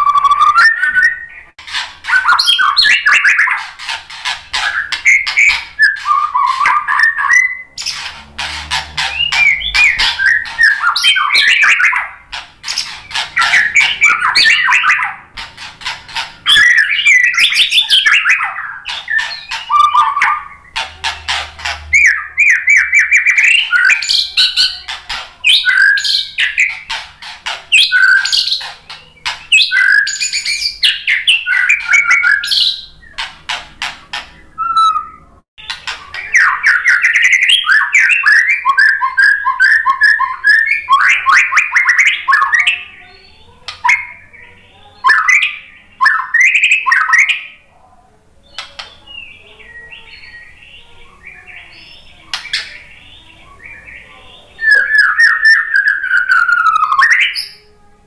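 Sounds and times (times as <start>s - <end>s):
bird singing varied song: 0.0s - 57.9s.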